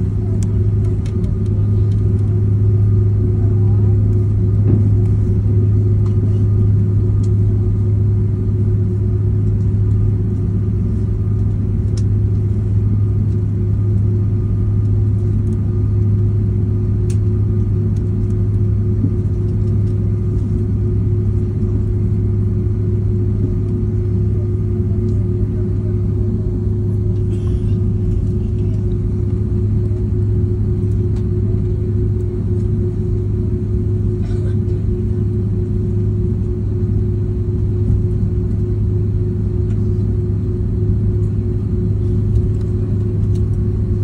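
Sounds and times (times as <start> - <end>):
airliner cabin drone: 0.0 - 44.0.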